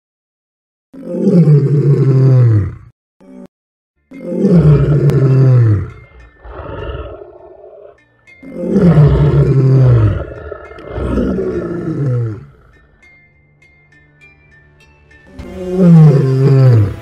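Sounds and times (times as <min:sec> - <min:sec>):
lion roaring: 0:01.0 - 0:02.9, 0:04.2 - 0:12.8, 0:15.5 - 0:17.0.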